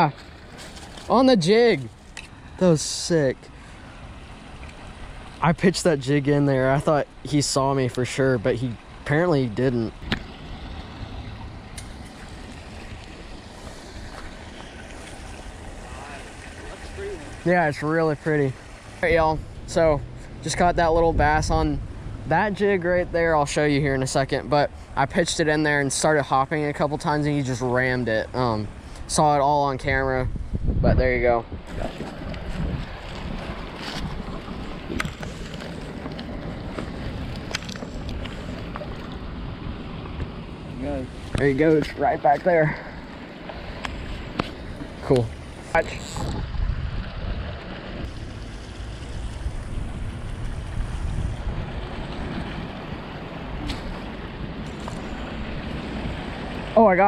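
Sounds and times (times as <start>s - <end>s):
wind noise on microphone: 29.8s - 40.4s, 45.6s - 56.6s.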